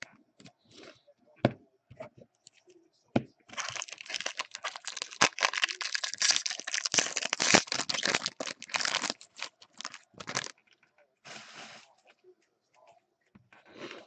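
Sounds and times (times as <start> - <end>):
plastic wrapper tearing and crinkling: 3.5 - 10.6.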